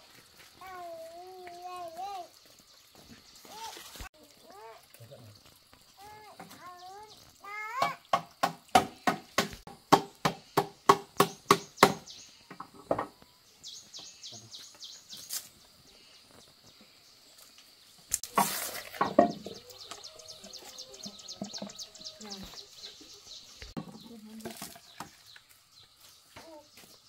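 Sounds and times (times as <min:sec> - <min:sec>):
birds chirping: 0:00.6 - 0:08.5, 0:10.4 - 0:27.0
machete chopping on wood: 0:07.8 - 0:12.1.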